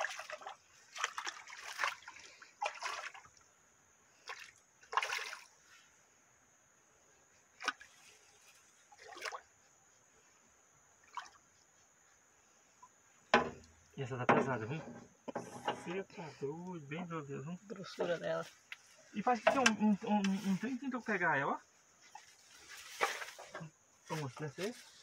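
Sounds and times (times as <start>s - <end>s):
fish splashing at water surface: 0.0s - 3.4s, 4.2s - 5.6s, 8.9s - 9.4s, 11.0s - 11.4s.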